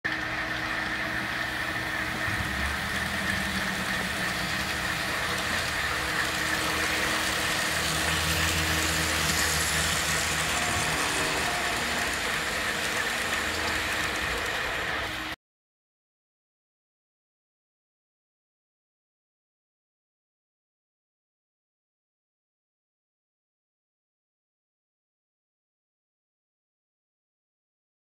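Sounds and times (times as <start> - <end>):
constant high whine: 0.1 - 15.4
model train engine drone: 0.1 - 15.4.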